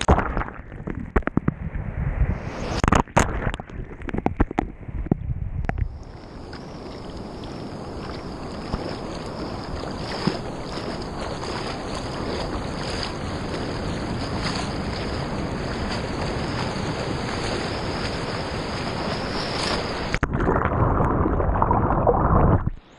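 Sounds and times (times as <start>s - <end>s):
muffled water sloshing against camera: 0.0s - 22.9s
hiss of foam and small waves: 6.0s - 20.2s.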